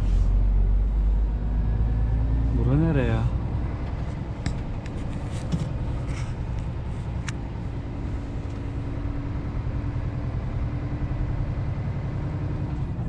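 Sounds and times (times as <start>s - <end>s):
diesel truck engine idling: 0.0s - 13.0s.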